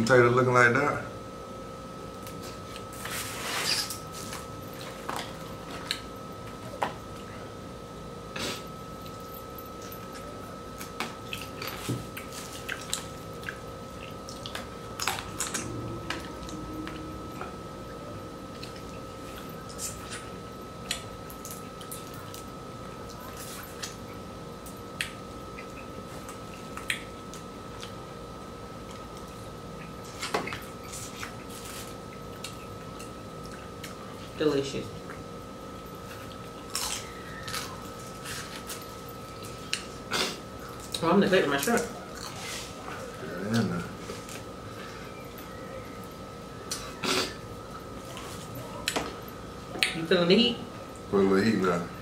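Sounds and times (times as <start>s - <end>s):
faint steady tone: 15.3s - 19.8s.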